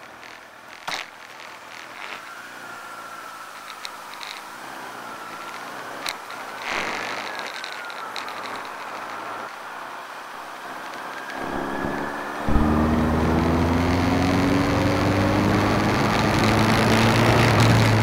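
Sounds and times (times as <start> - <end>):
vehicle engine accelerating: 10.6 - 18.0.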